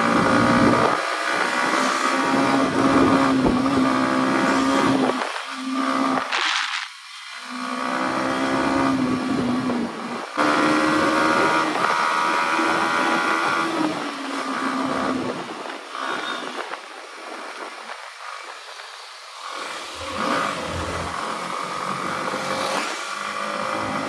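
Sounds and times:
motorcycle engine running: 0:00.0 - 0:16.6, 0:20.0 - 0:24.0.

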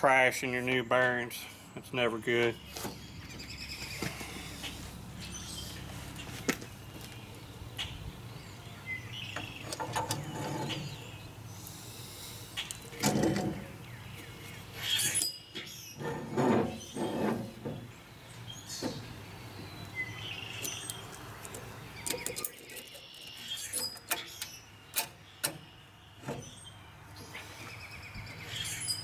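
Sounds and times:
metal scraping and rubbing: 0:09.7 - 0:11.1, 0:14.8 - 0:18.0
sharp metal clicks and knocks: 0:20.6 - 0:26.5.

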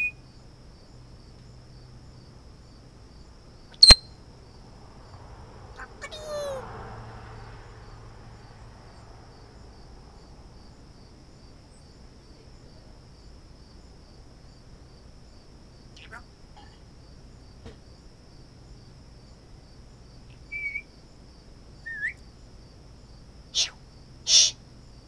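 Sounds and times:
crickets chirping: 0:00.0 - 0:25.0
bird whistles: 0:03.8 - 0:04.1, 0:20.5 - 0:20.9, 0:21.9 - 0:22.2, 0:23.6 - 0:24.6.

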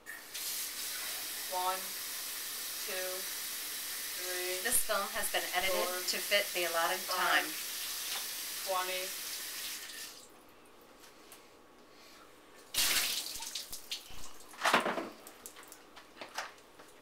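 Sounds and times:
faucet water running: 0:00.0 - 0:10.3, 0:12.8 - 0:14.5
water splashing into sink: 0:12.8 - 0:15.8.

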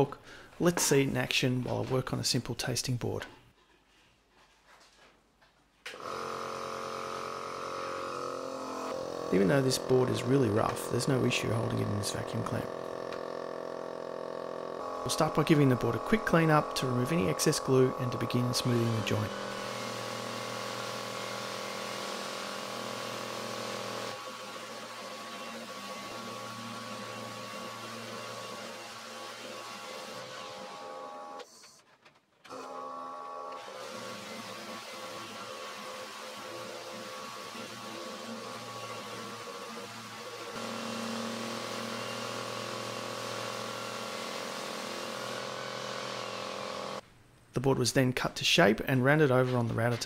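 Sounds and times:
orbital sander on wood: 0:06.0 - 0:31.4, 0:33.6 - 0:47.0.

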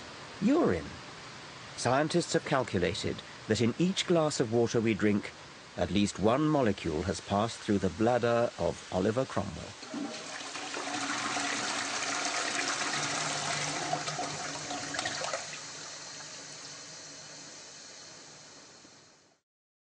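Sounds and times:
toilet flushing: 0:09.8 - 0:19.2.

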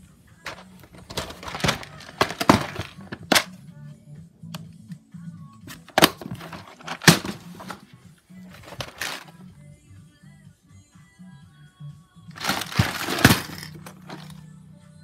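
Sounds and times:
plastic bricks rattling and scraping: 0:00.5 - 0:03.5, 0:05.8 - 0:07.8, 0:08.5 - 0:09.4, 0:12.4 - 0:14.4.

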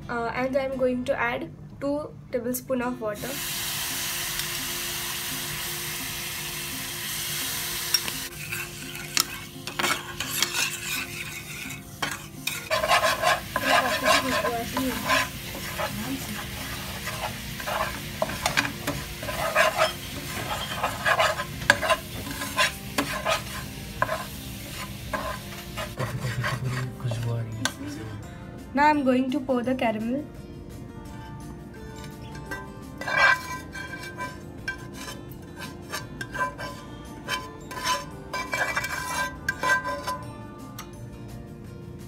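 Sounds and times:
sugar sizzling in a pan: 0:03.2 - 0:26.8, 0:31.9 - 0:40.3
spoon scraping a pan: 0:07.8 - 0:28.2, 0:31.1 - 0:40.9.

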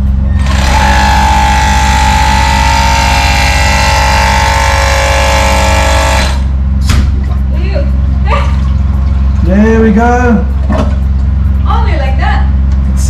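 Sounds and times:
air plunger motor whining: 0:00.0 - 0:06.6.

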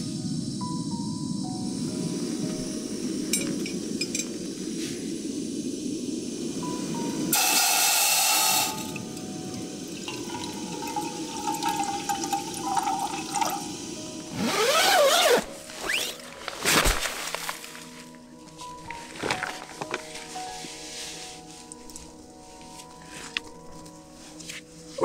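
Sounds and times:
gas camping stove hissing: 0:00.0 - 0:25.0.

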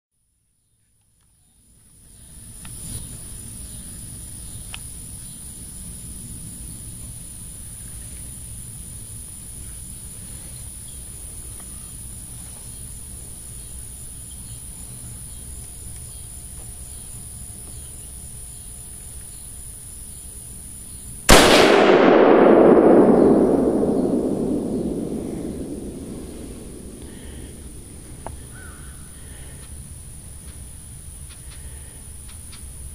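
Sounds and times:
quiet outdoor background: 0:00.1 - 0:32.9
rifle shot with rumbling echo: 0:21.3 - 0:28.6.

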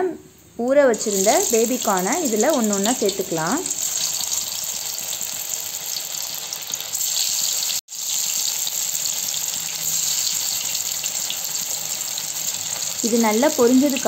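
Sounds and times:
food deep-frying in hot oil: 0:00.9 - 0:14.0.

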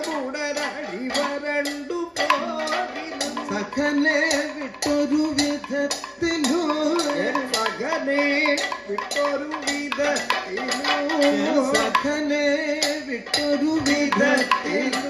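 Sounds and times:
drumming: 0:00.0 - 0:15.0
man singing ornamented notes: 0:00.0 - 0:15.0.

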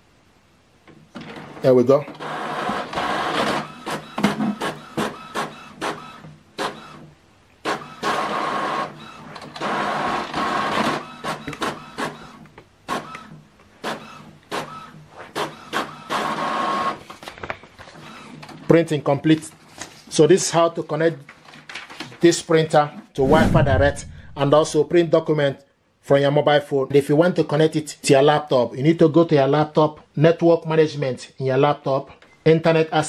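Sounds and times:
printer rapid clicks and clacks: 0:02.2 - 0:07.0, 0:07.7 - 0:17.0
printer mechanical whirring: 0:02.2 - 0:07.1, 0:07.7 - 0:17.0.

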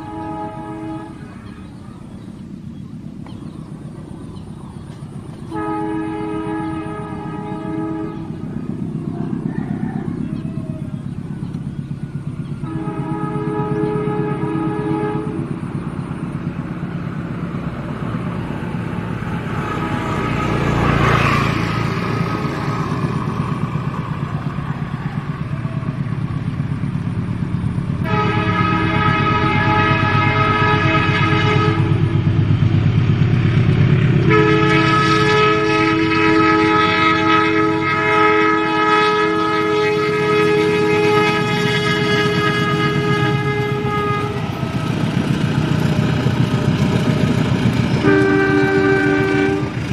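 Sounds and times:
locomotive air horn blasts: 0:00.0 - 0:01.5, 0:05.5 - 0:08.8, 0:12.6 - 0:16.0, 0:18.8 - 0:22.5, 0:28.0 - 0:32.2, 0:34.2 - 0:45.4, 0:48.0 - 0:49.9
diesel engine rumble: 0:00.0 - 0:49.9.

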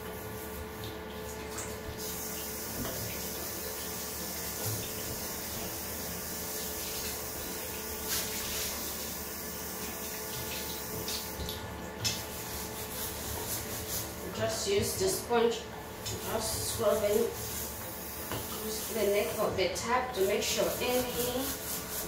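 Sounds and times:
tap running into sink: 0:18.2 - 0:18.7.

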